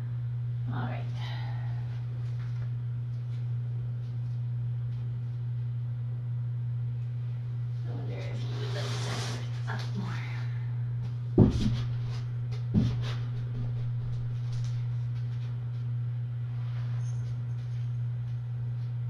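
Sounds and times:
steady low hum: 0:00.0 - 0:19.0
cardboard thumping on carpet: 0:11.4 - 0:12.0, 0:12.7 - 0:14.2.

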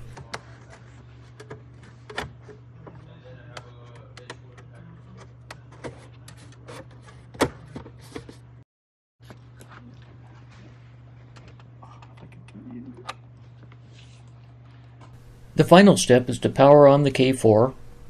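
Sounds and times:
steady low hum: 0:09.2 - 0:18.0.

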